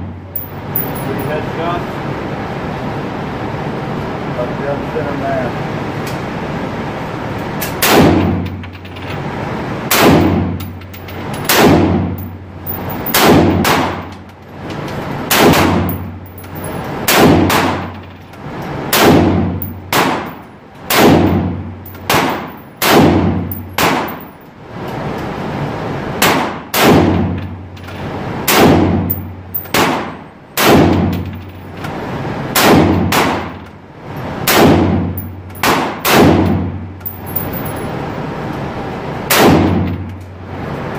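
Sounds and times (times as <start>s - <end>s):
gunshots ringing indoors: 9.9s - 10.6s, 11.4s - 12.3s, 12.9s - 14.1s, 15.3s - 16.2s, 17.0s - 18.0s, 18.9s - 24.4s, 28.4s - 31.3s, 32.5s - 33.6s, 34.4s - 37.9s, 39.3s - 40.0s.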